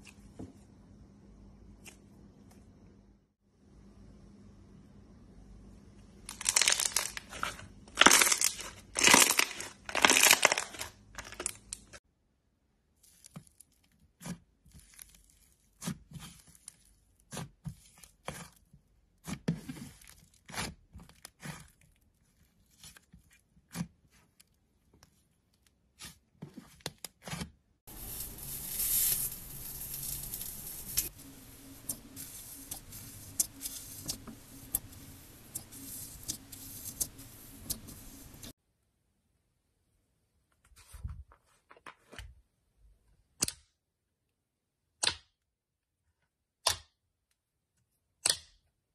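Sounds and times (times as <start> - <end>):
hands squeezing thick slime: 6.3 - 11.6
metal rod stirring slime in bowl: 30.0 - 38.5.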